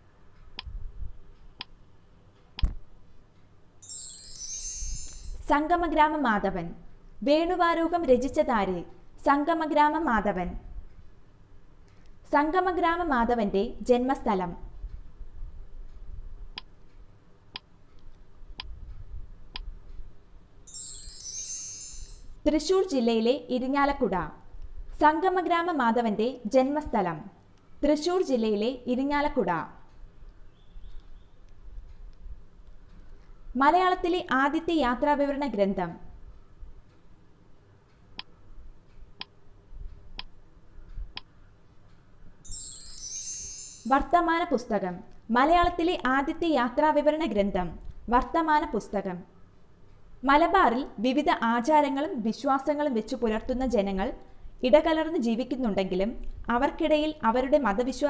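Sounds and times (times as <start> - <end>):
bright shimmering chime: 3.8 - 5.5, 20.7 - 22.4, 42.4 - 43.9.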